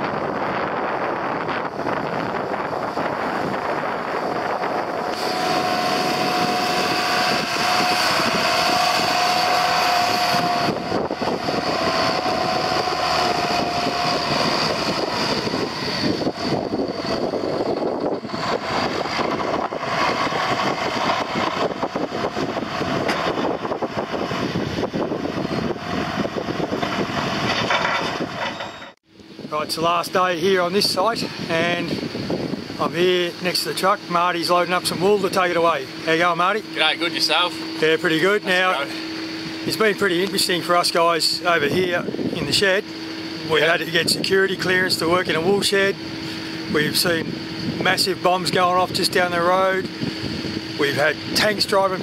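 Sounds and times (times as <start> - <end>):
steady whine: 0.0 - 52.0
tractor diesel engine running: 0.0 - 52.0.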